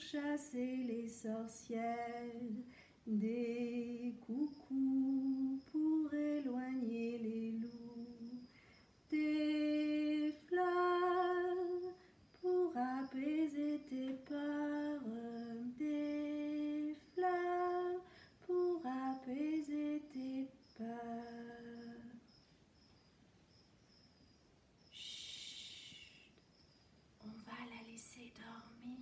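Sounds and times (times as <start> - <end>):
woman humming a lullaby: 0.0 - 8.5, 9.1 - 22.2, 24.9 - 26.3.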